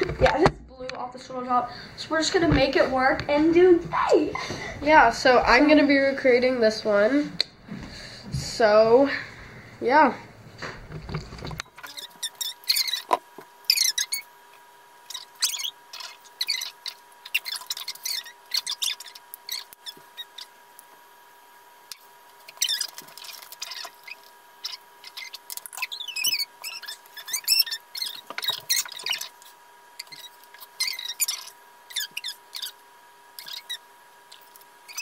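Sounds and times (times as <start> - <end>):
faint electrical whine: 0.0 - 35.0
high squeaky chattering: 11.8 - 14.3, 15.1 - 20.6, 22.4 - 32.8, 33.4 - 35.0.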